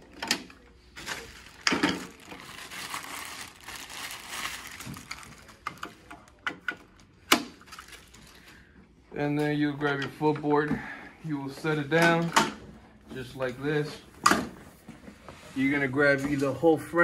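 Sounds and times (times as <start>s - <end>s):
plastic wrapping crinkling: 0.9s - 8.6s.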